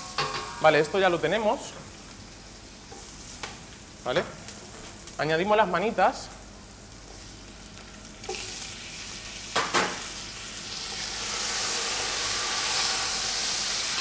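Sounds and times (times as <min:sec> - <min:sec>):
meat sizzling in hot oil: 0:06.4 - 0:14.0.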